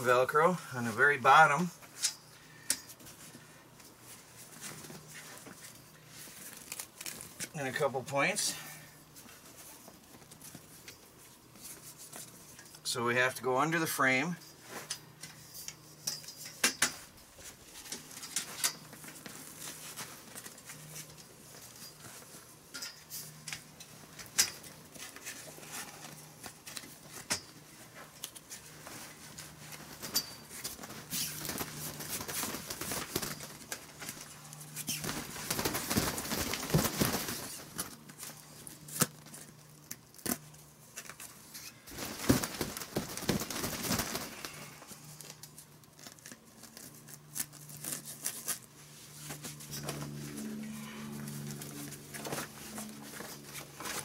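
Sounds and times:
plastic cover rustling: 0:03.0 - 0:07.6, 0:17.0 - 0:54.0
velcro straps ripping: 0:06.4 - 0:07.4, 0:44.2 - 0:48.7.

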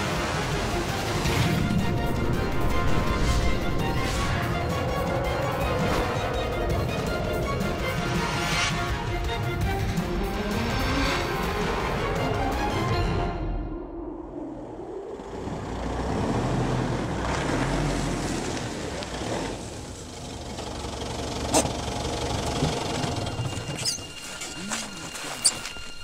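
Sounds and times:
car engine idling: 0:18.5 - 0:23.8.

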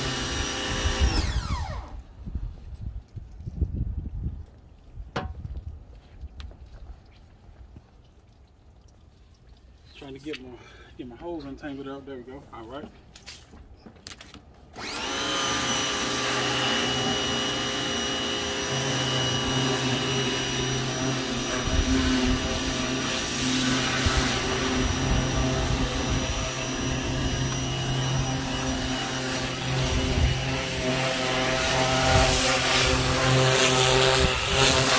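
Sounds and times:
pressure washer motor whining: 0:00.0 - 0:02.2, 0:14.8 - 0:34.9.

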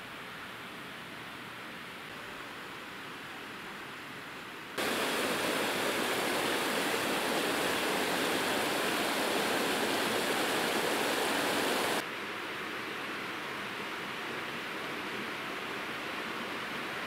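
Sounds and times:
river water rushing: 0:04.8 - 0:12.0.

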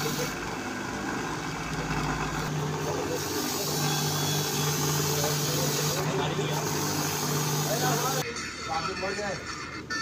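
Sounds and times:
grinding wheel hissing on metal: 0:00.0 - 0:01.0, 0:02.4 - 0:08.2
bench grinder motor humming: 0:00.0 - 0:08.2.

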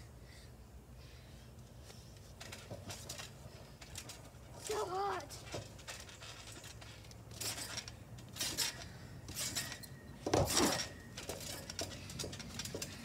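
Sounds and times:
trampoline springs bouncing: 0:01.6 - 0:13.0.

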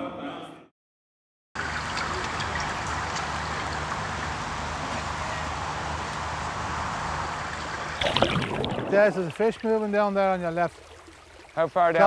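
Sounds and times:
river water rippling: 0:01.6 - 0:12.0.

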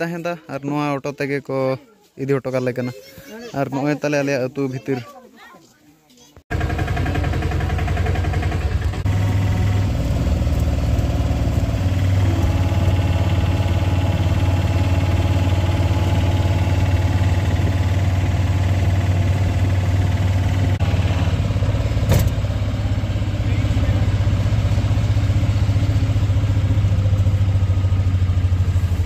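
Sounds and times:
auto-rickshaw engine drone: 0:06.5 - 0:29.0.

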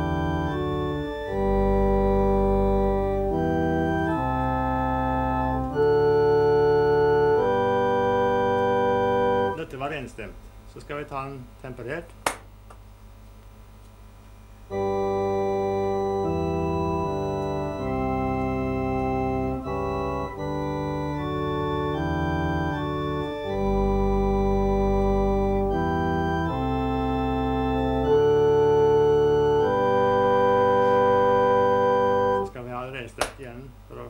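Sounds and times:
electronic organ playing hymn chords: 0:00.0 - 0:10.1, 0:14.6 - 0:32.8.

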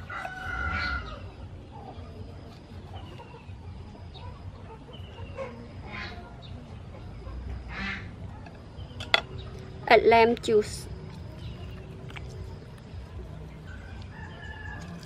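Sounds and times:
chickens clucking: 0:00.0 - 0:09.8.

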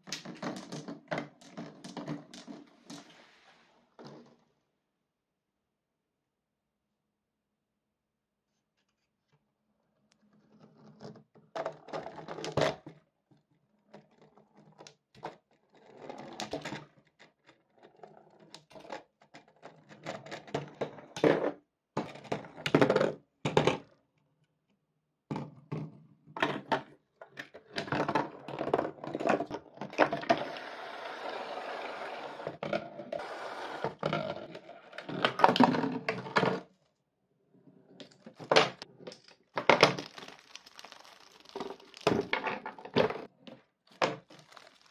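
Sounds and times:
marbles rolling on cardboard track: 0:27.8 - 0:32.6
marbles clicking and knocking: 0:39.6 - 0:42.8.

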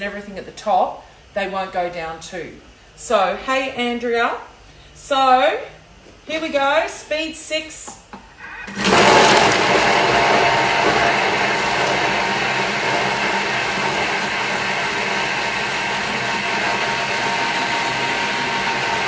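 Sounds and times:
food processor blades whirring: 0:08.7 - 0:19.0.

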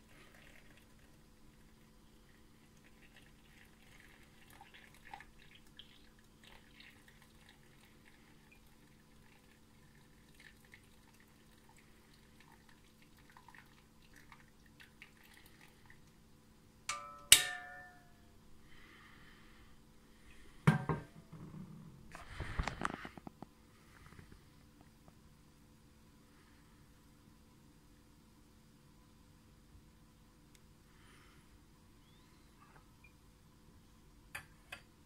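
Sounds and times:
sharp metallic clink: 0:16.9 - 0:18.1.

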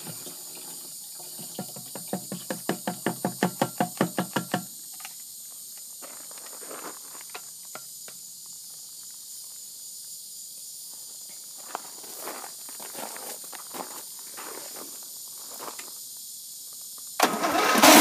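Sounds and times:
footsteps on gravel: 0:06.0 - 0:07.4, 0:10.9 - 0:15.9.

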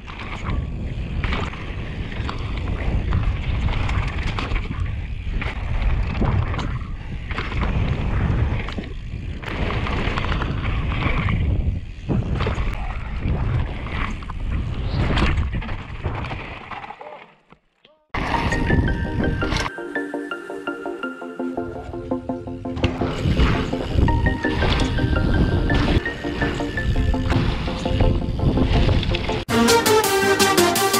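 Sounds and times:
wind buffeting microphone: 0:00.0 - 0:16.3
bike knocking and rattling: 0:00.0 - 0:16.6, 0:22.8 - 0:29.5.

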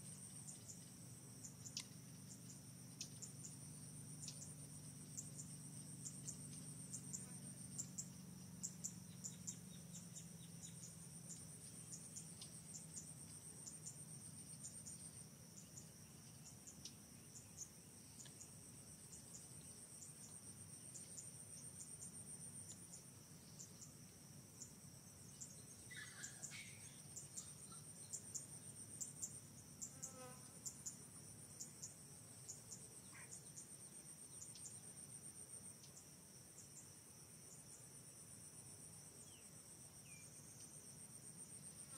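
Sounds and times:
high-pitched pulsing insect chorus: 0:00.0 - 0:41.9
short chirping calls: 0:25.9 - 0:27.9.

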